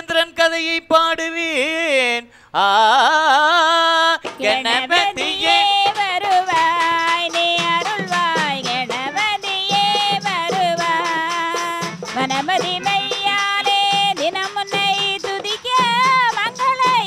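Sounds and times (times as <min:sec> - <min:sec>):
folk singing: 0:00.0 - 0:17.0
drum strokes: 0:04.2 - 0:17.0.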